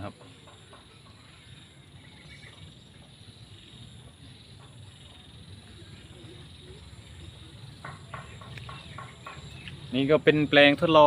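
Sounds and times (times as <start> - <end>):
insects chirring: 0.0 - 11.0.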